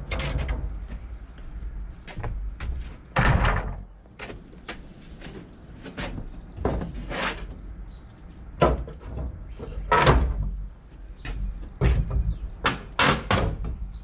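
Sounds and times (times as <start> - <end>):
wood scraping: 3.2 - 7.7.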